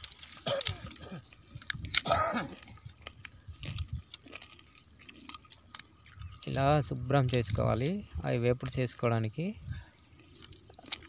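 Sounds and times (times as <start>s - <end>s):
crab shells cracking: 0.0s - 7.6s, 10.2s - 11.0s.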